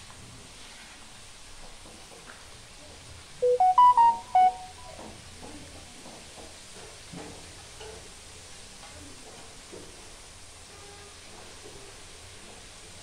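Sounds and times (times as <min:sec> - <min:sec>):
electronic beeping chime: 0:03.4 - 0:04.9.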